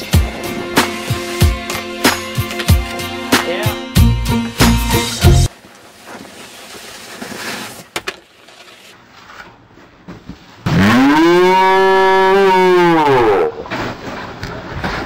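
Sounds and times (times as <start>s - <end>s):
cow mooing: 10.7s - 13.6s.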